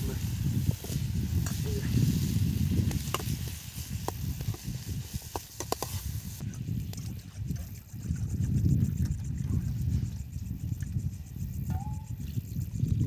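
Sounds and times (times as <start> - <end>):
faint sizzle: 0.0 - 6.4.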